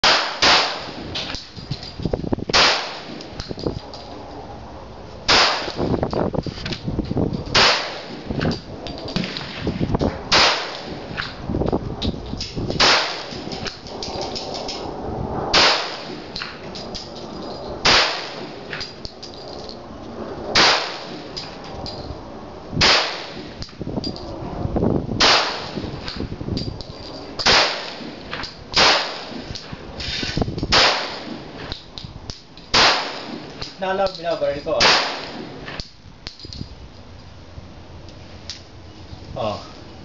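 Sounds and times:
pistol shots: 0:00.0 - 0:01.0, 0:02.5 - 0:03.2, 0:05.3 - 0:05.8, 0:07.5 - 0:08.2, 0:10.3 - 0:11.0, 0:12.8 - 0:13.6, 0:15.5 - 0:16.2, 0:17.8 - 0:18.6, 0:20.6 - 0:21.3, 0:22.8 - 0:23.5, 0:25.2 - 0:25.8, 0:27.4 - 0:28.2, 0:28.8 - 0:29.4, 0:30.7 - 0:31.4, 0:32.7 - 0:33.8, 0:34.8 - 0:35.6.

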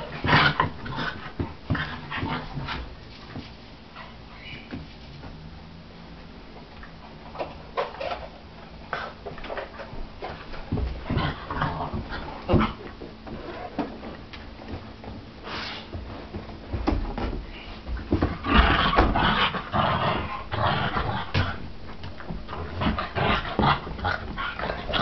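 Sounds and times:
dogs fighting: 0:00.0 - 0:03.0, 0:08.9 - 0:13.9, 0:18.0 - 0:25.0
thumps and scuffling: 0:09.3 - 0:19.6.

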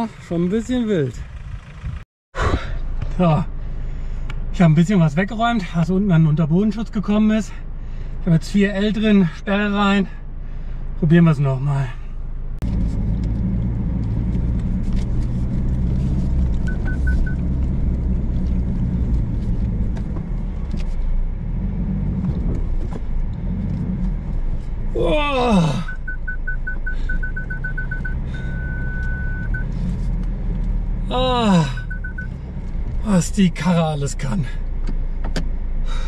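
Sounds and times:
engine pulling: 0:12.6 - 0:36.0
high electronic beeps: 0:25.8 - 0:29.7, 0:31.8 - 0:32.4.

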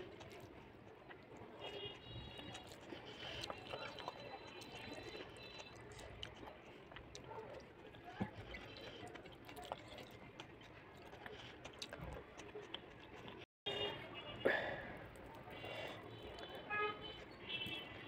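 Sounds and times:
soft moist eating smacks: 0:00.0 - 0:13.4, 0:15.0 - 0:16.6.

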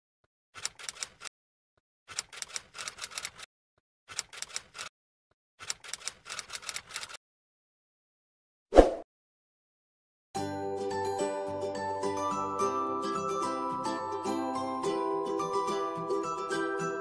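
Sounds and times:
rapid keyboard key clicks: 0:02.1 - 0:03.5.

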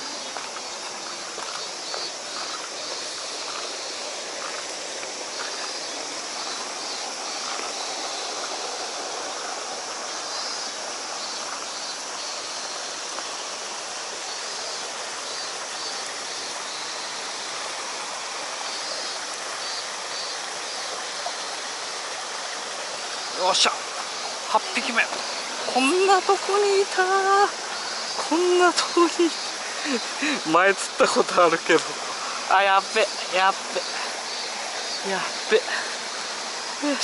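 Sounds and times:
stream rushing over rock: 0:00.0 - 0:37.0.

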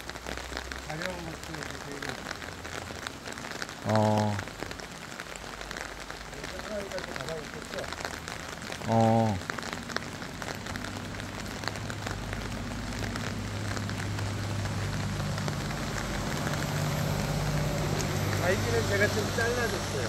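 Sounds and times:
rain pattering: 0:00.0 - 0:20.0
low-pitched vocal sound: 0:03.8 - 0:04.5, 0:08.8 - 0:09.4.

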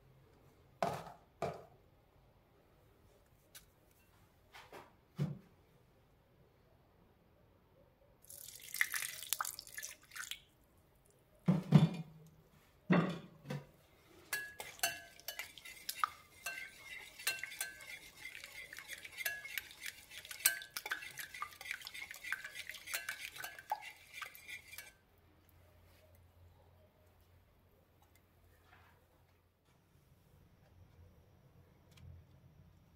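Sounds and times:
whisk clinking against glass bowl: 0:14.3 - 0:25.0.

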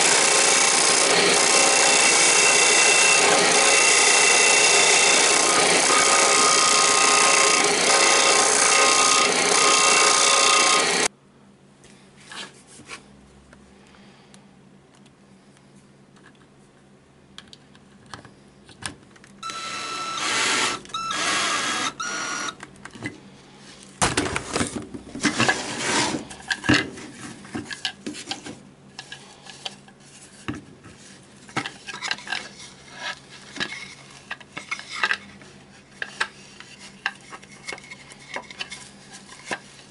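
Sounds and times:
belt and disc sander running: 0:00.0 - 0:11.1
cordless drill driving screws: 0:00.0 - 0:11.1, 0:19.4 - 0:22.6.

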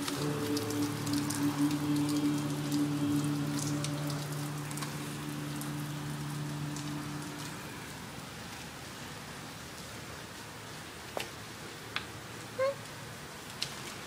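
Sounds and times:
steady low hum: 0:00.0 - 0:08.6
heavy rain falling: 0:00.0 - 0:14.0
raindrops ticking close by: 0:00.0 - 0:14.0.

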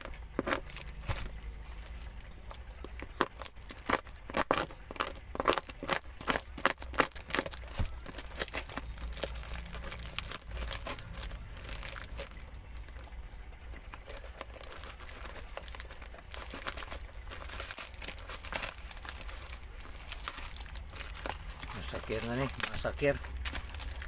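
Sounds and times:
scissors cutting package: 0:00.0 - 0:12.4, 0:13.9 - 0:24.0
plastic wrapping crinkling: 0:00.0 - 0:24.0.

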